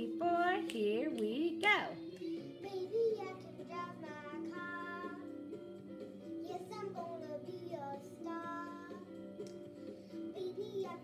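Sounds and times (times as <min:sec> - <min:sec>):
pop-rock backing track: 0:01.9 - 0:11.0
child singing: 0:02.6 - 0:05.3, 0:06.4 - 0:09.1, 0:10.3 - 0:11.0.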